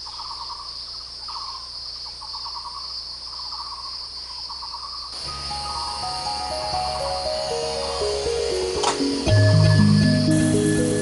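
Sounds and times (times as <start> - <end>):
insect pulsing trilling call: 0.0 - 11.0
insects high-pitched drone: 0.0 - 11.0
music with stepped notes: 5.2 - 11.0.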